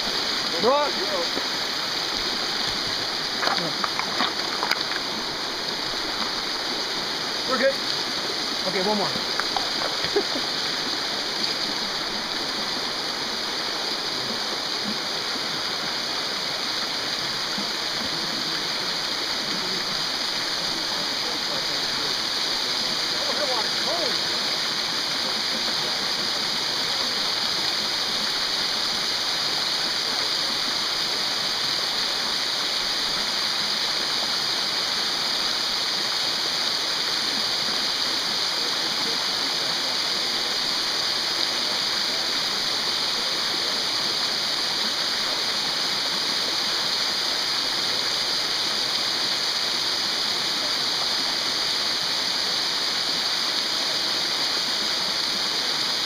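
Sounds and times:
waterfall rushing over rock: 0:00.0 - 0:56.0.

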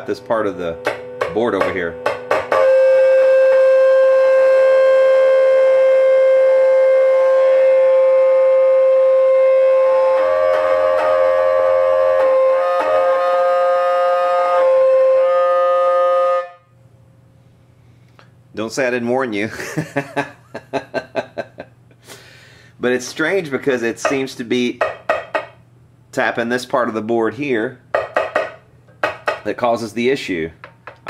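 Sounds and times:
amplifier squealing tone: 0:00.0 - 0:16.6.

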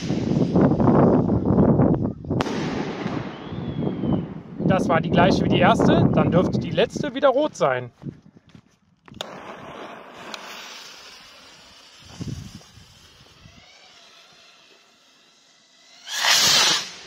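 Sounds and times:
rocket motor igniting: 0:00.0 - 0:01.4, 0:09.1 - 0:17.0
fuse hissing: 0:09.2 - 0:17.0
lighter flame hissing: 0:09.2 - 0:17.0.

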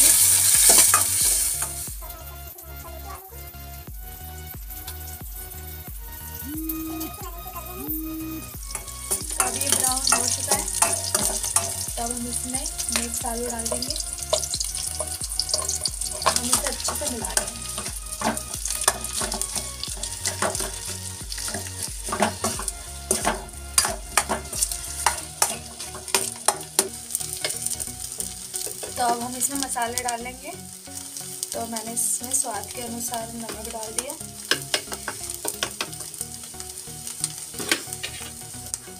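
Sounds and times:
spoon stirring and scraping: 0:00.0 - 0:01.9, 0:08.6 - 0:29.4
potato sizzling in hot oil: 0:00.0 - 0:38.9
spoon clinking against pan: 0:08.7 - 0:11.9.

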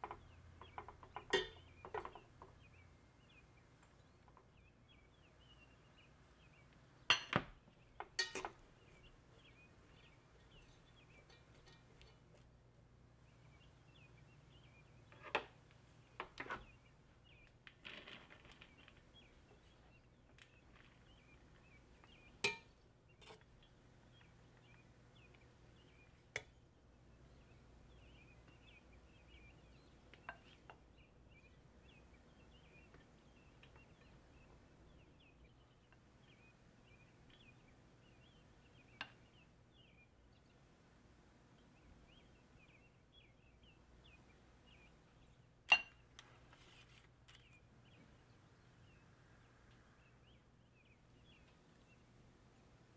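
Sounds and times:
utensil clinking on metal pot: 0:01.2 - 0:02.2, 0:08.1 - 0:08.6, 0:11.1 - 0:12.2, 0:22.4 - 0:23.4, 0:45.7 - 0:46.0.

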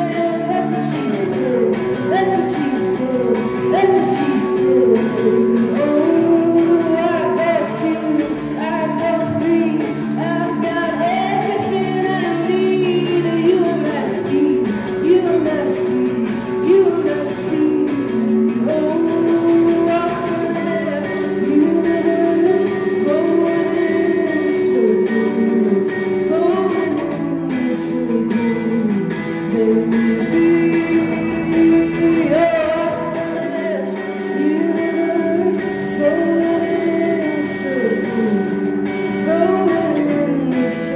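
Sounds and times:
strummed guitar: 0:00.0 - 0:40.9
woman singing into microphone: 0:00.0 - 0:40.9.

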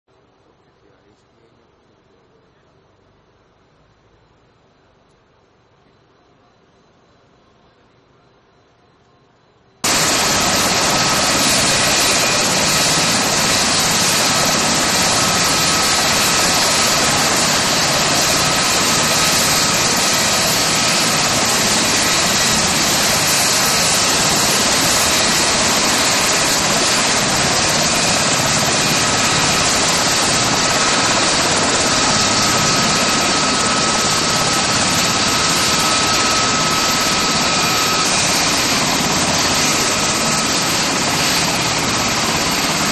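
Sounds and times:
helicopter turbine engine: 0:09.8 - 0:42.9.

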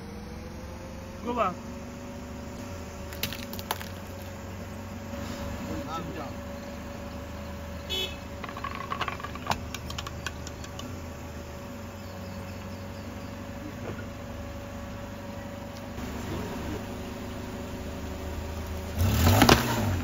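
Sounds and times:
car engine humming: 0:00.0 - 0:20.0
tyre crushing drink can: 0:03.1 - 0:04.3, 0:08.4 - 0:10.4.

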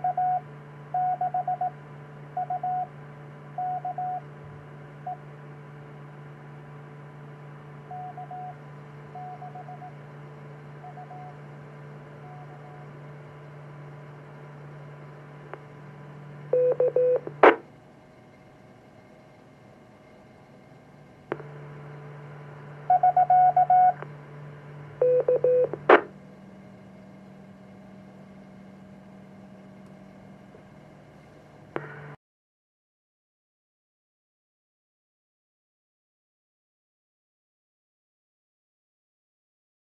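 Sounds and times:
morse code beeps: 0:01.0 - 0:01.8, 0:02.4 - 0:02.9, 0:03.6 - 0:04.2, 0:07.9 - 0:08.6, 0:09.2 - 0:09.9, 0:16.5 - 0:17.6, 0:22.9 - 0:24.0, 0:25.0 - 0:26.1
radio hum and hiss: 0:06.4 - 0:17.7, 0:21.2 - 0:26.2, 0:30.5 - 0:32.2
click: 0:15.5 - 0:15.7, 0:21.3 - 0:21.5, 0:29.8 - 0:30.0
radio static burst: 0:17.4 - 0:17.6, 0:25.8 - 0:26.1
short radio beeps: 0:25.0 - 0:26.1.

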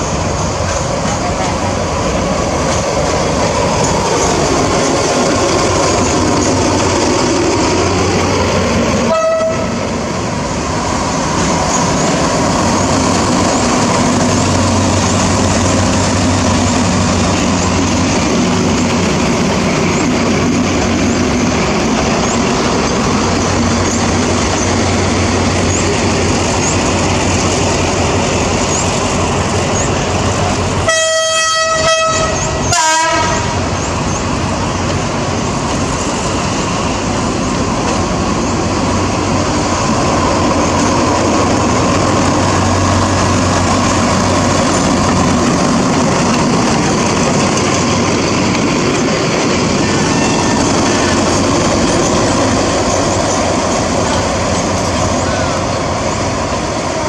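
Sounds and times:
diesel locomotive running: 0:00.0 - 0:57.0
locomotive horn: 0:09.0 - 0:09.9, 0:30.8 - 0:33.6.

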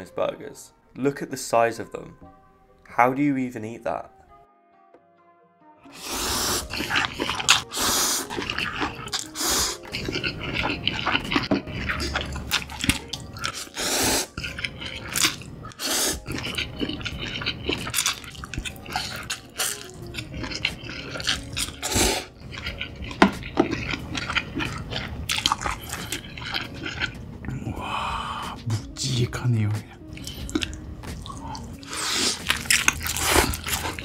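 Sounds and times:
wet slurping of noodles: 0:05.9 - 0:27.2, 0:30.1 - 0:34.0
chewing: 0:05.9 - 0:27.7, 0:30.0 - 0:34.0.

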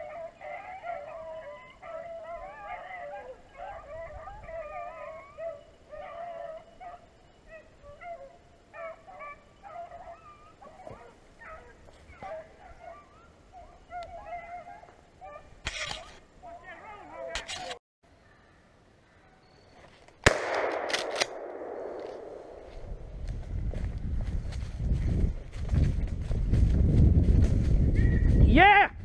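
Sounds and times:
hounds baying: 0:00.0 - 0:17.8.

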